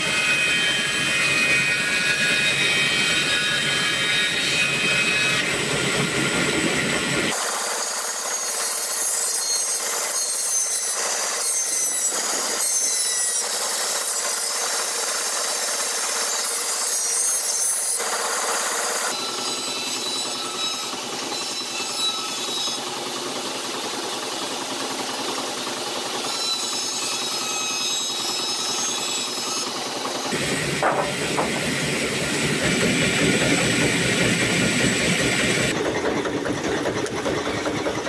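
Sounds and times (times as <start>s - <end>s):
bandsaw sawing wood: 0.0s - 35.8s
stationary engine running: 29.7s - 38.0s.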